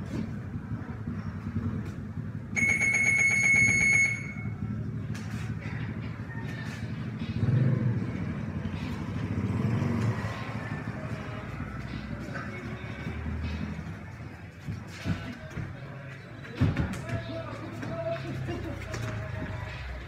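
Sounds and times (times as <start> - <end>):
vehicle engines rumbling: 0.0 - 20.0.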